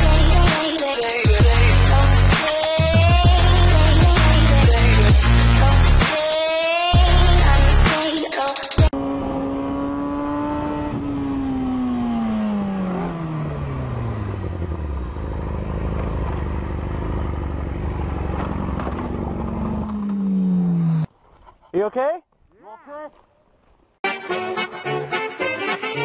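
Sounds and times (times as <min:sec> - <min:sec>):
motorcycle engine: 0:08.9 - 0:21.1
rough noisy rumble: 0:14.0 - 0:21.3.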